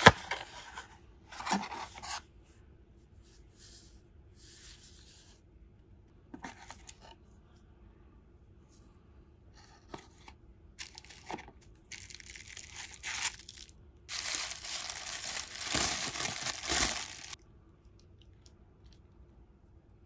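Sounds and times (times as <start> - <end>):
tissue paper crinkling: 10.8 - 17.4.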